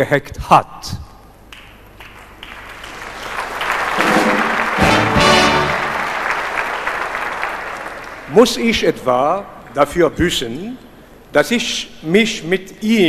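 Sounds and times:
audience applause: 0:02.0 - 0:08.6
brass band fanfare: 0:04.0 - 0:06.5.

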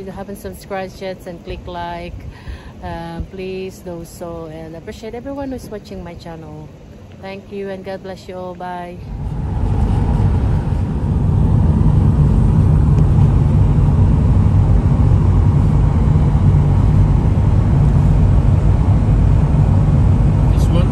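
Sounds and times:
vehicle engine and tyre rumble: 0:08.8 - 0:20.9.

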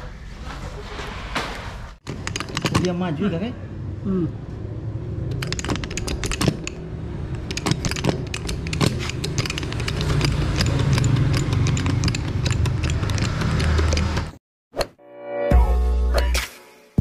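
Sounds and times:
wire rope cutter clicking: 0:05.3 - 0:14.3.

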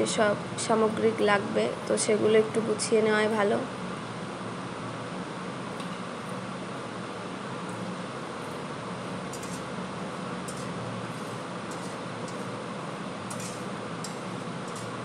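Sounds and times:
spices sizzling in hot oil: 0:06.1 - 0:15.0
spatula stirring: 0:09.3 - 0:15.0.

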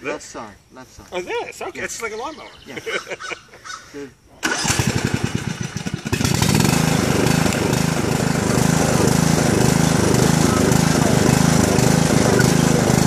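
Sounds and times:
riding lawn mower engine running: 0:04.4 - 0:13.0.

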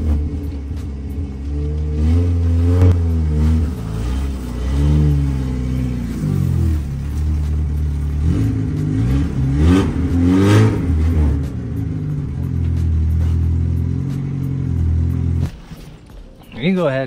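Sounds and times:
car engine revving: 0:00.0 - 0:16.3.

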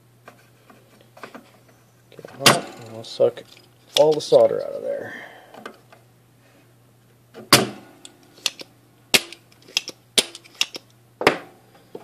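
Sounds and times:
desoldering pump snapping: 0:03.5 - 0:04.4.

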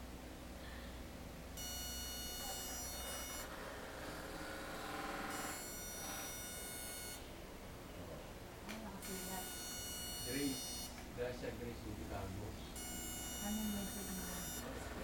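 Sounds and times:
pulsing electrical buzz: 0:01.6 - 0:07.3, 0:09.0 - 0:11.1, 0:12.7 - 0:15.0.

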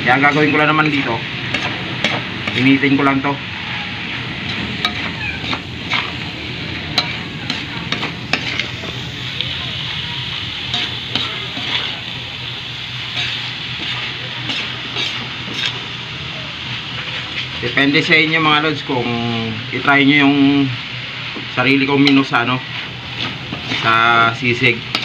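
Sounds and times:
meat sizzling in a wok: 0:00.0 - 0:25.0
metal spatula scraping pan: 0:03.8 - 0:06.2, 0:06.8 - 0:08.8, 0:13.1 - 0:15.8, 0:23.2 - 0:24.0.

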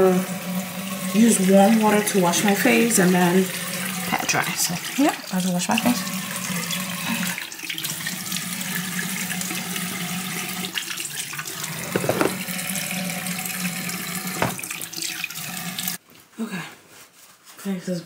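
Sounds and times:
tap running into sink: 0:11.6 - 0:12.9, 0:13.8 - 0:15.3.

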